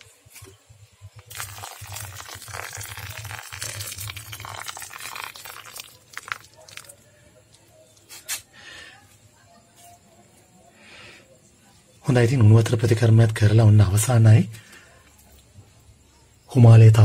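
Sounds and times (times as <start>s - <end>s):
faint fizzing and ticks: 1.0s - 8.1s
boiling water pouring and splashing: 1.1s - 7.2s.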